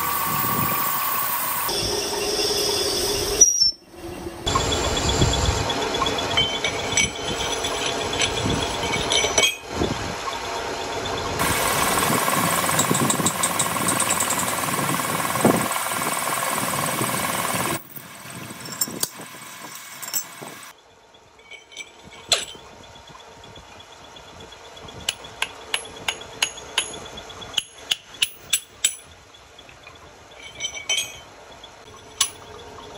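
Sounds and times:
metal lathe running: 0.0s - 3.4s, 4.5s - 20.7s.

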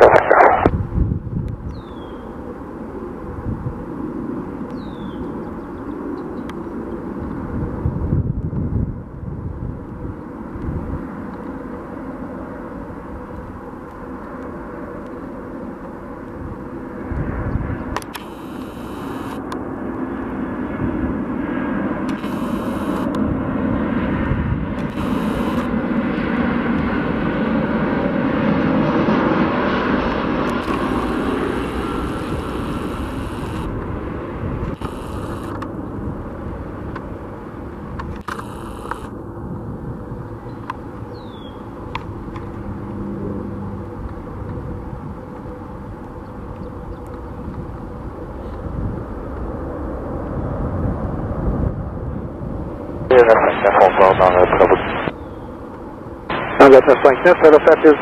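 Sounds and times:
jet engine rumble: 0.0s - 58.0s.

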